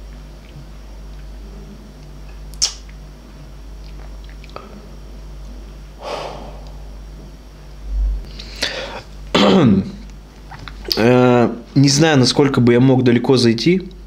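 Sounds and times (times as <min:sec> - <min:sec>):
low steady hum: 0:00.0 - 0:14.0
mouth clicks: 0:02.5 - 0:03.0
man sniffing: 0:06.0 - 0:07.0, 0:08.3 - 0:09.1
man breathing: 0:06.0 - 0:07.1, 0:08.2 - 0:09.1.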